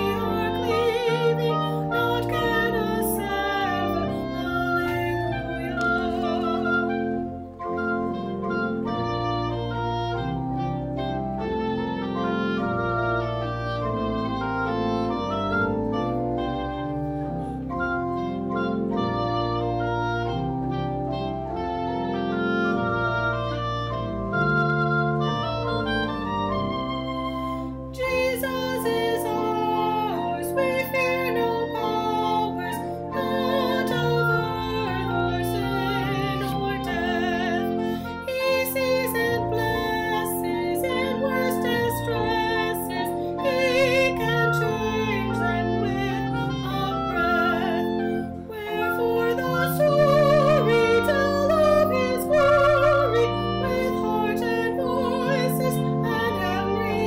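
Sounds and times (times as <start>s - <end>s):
woman singing with vibrato: 0.0s - 7.2s, 27.9s - 57.0s
pipe organ chords: 0.0s - 57.0s
woodwind playing: 0.0s - 57.0s.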